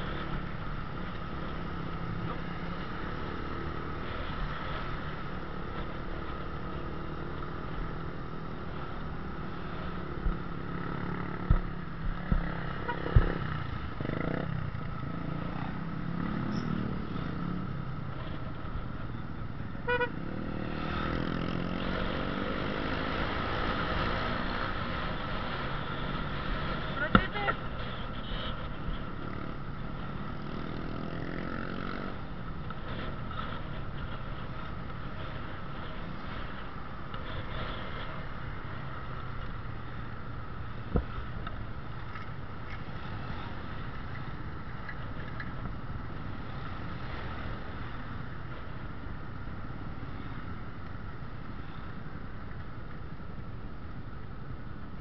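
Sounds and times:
road and wind noise: 0:00.0 - 0:55.0.

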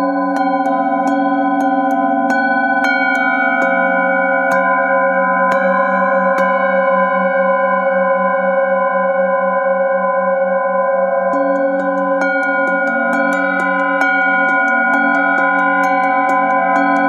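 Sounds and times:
metal singing bowls ringing: 0:00.0 - 0:17.0.

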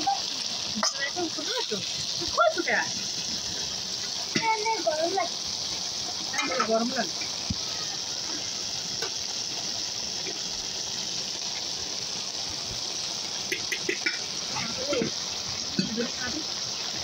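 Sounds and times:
vegetables sizzling in wok: 0:00.0 - 0:17.0.

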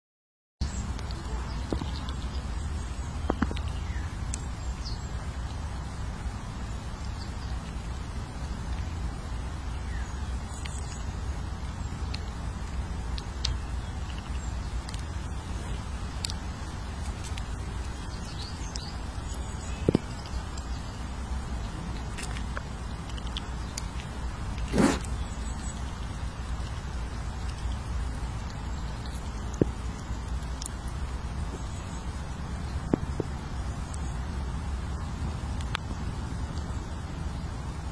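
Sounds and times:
low outdoor rumble: 0:00.6 - 0:37.9
small birds chirping: 0:00.6 - 0:37.9
sharp clicks: 0:21.9 - 0:31.7
rustling sweep: 0:24.6 - 0:25.2.

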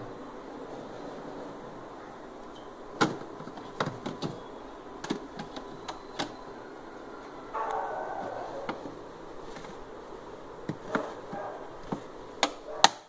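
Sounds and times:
refrigerator hum: 0:00.0 - 0:13.0
clicks and knocks on plastic: 0:03.0 - 0:04.4, 0:05.0 - 0:06.4, 0:10.6 - 0:13.0.

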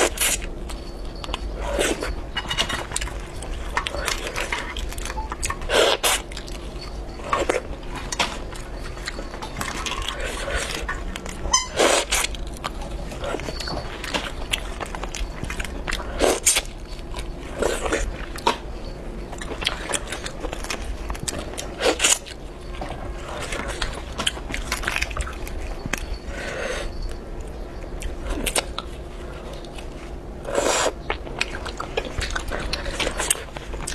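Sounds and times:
chewing and biting: 0:00.0 - 0:33.9.

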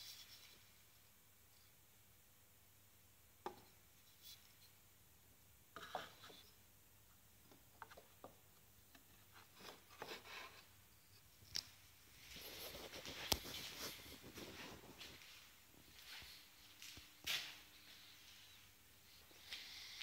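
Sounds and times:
wooden dowels clicking and knocking: 0:07.4 - 0:10.2.

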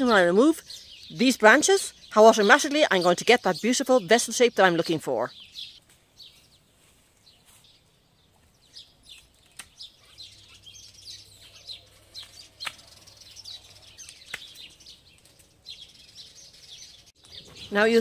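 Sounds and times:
birds chirping: 0:00.0 - 0:18.0
loppers snapping through stems: 0:09.1 - 0:09.9, 0:12.2 - 0:13.0, 0:14.0 - 0:15.6.

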